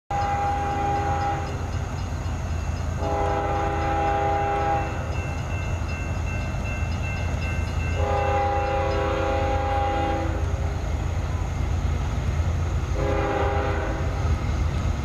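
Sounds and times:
locomotive air horn blasts: 0:00.1 - 0:01.6, 0:03.0 - 0:05.0, 0:08.0 - 0:10.5, 0:13.0 - 0:14.2
low rumble of train: 0:00.1 - 0:15.0.

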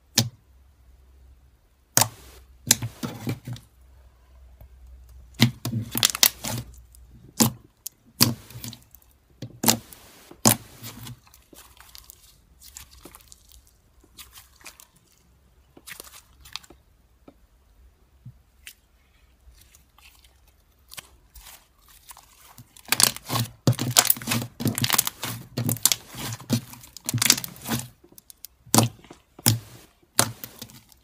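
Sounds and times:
slime squished by hand: 0:05.2 - 0:16.8, 0:18.4 - 0:31.0.

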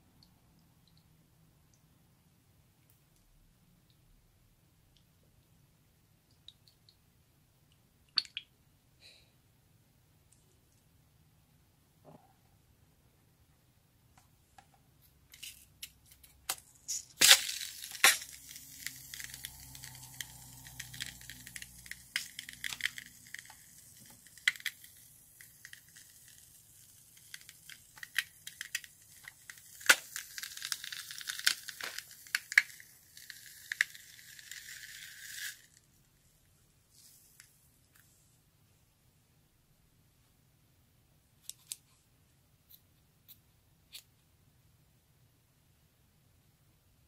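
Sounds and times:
foam hissing and sputtering: 0:16.8 - 0:35.8.

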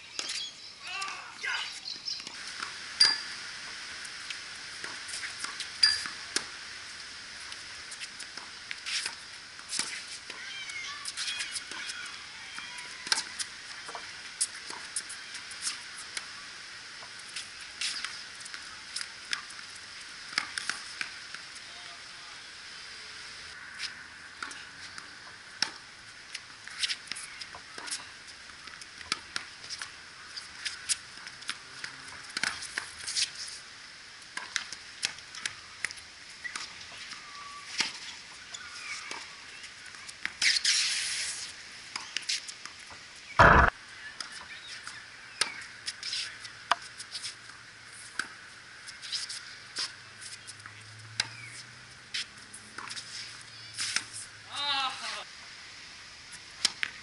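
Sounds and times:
loud dull thump: 0:43.4 - 0:43.7
tennis balls struck and bouncing: 0:43.4 - 0:43.7.

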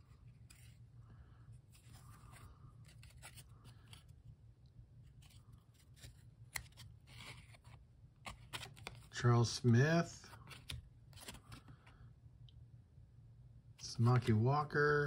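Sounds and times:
cardboard cards scraping and rustling: 0:00.0 - 0:00.9, 0:01.6 - 0:09.2, 0:10.2 - 0:12.0.

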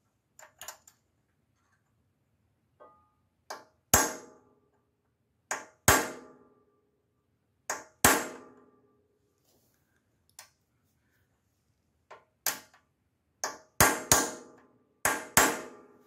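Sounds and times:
hammer striking metal punch: 0:02.8 - 0:04.4, 0:05.5 - 0:06.4, 0:07.7 - 0:08.6, 0:13.4 - 0:15.9.

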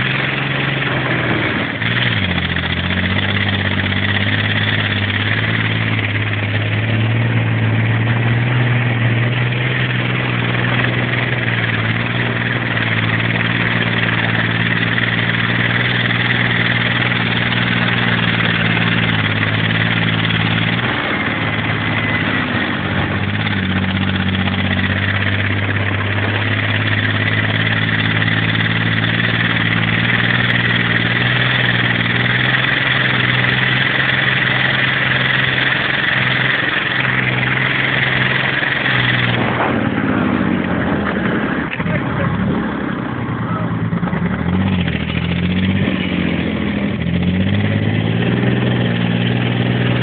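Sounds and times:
steady high whine: 0:00.0 - 0:50.0
vehicle engine running hard: 0:00.0 - 0:50.0
wind rush and running noise: 0:37.9 - 0:41.8.

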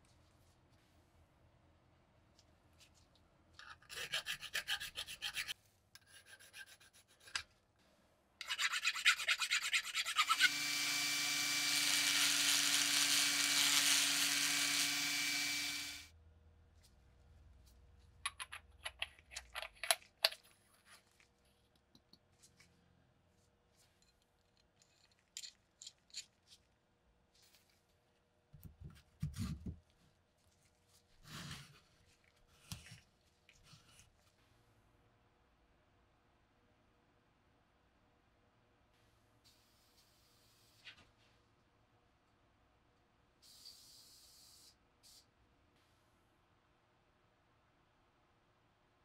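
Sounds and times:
rotary tool grinding: 0:08.4 - 0:16.1
light metal clicks and rubs: 0:23.8 - 0:26.8.

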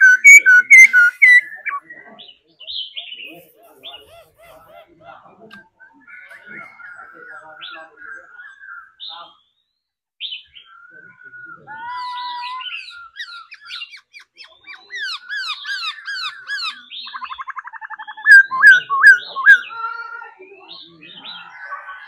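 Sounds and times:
bird singing whistled notes: 0:00.0 - 0:03.3, 0:05.8 - 0:11.9, 0:12.6 - 0:19.7.

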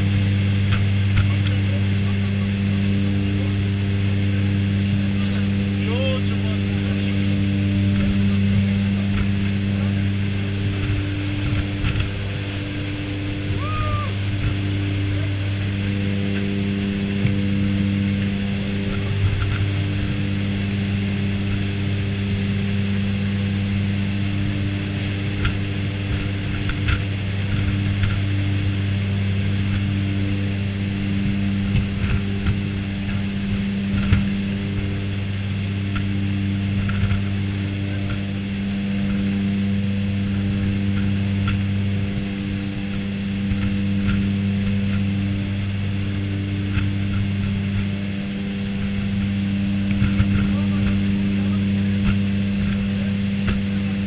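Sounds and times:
propeller engines droning: 0:00.0 - 0:54.0.

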